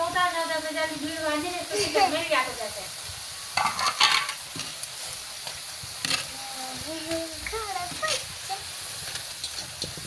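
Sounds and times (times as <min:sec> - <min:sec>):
food sizzling in oil: 0:00.0 - 0:10.0
metal skimmer scraping pan: 0:03.6 - 0:04.8.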